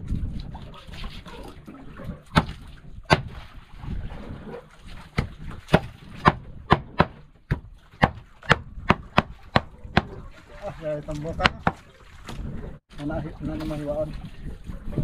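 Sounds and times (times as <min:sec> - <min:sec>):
knife chopping on wooden planks: 0:02.3 - 0:03.4, 0:05.2 - 0:10.2.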